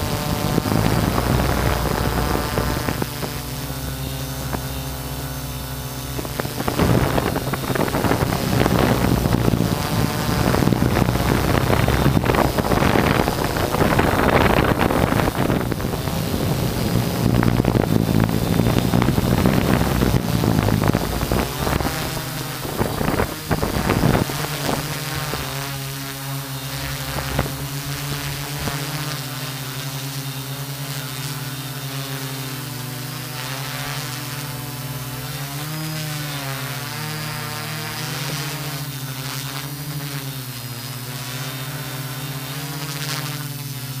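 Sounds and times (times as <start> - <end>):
wind gusts on microphone: 0.0 - 25.7, 26.8 - 29.4
drone propellers buzzing: 0.0 - 44.0.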